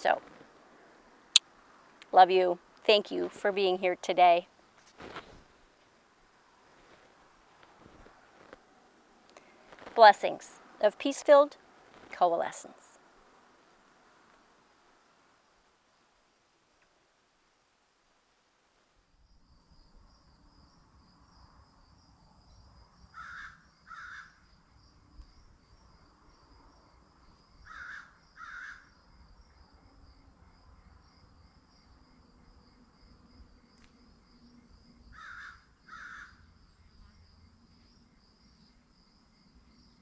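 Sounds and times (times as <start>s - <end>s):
insects trilling: 19.1s - 40.0s.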